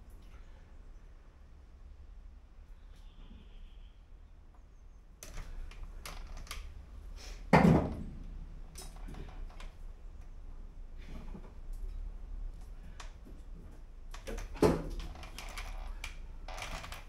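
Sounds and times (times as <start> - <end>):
metal parts clicking: 14.1 - 17.0.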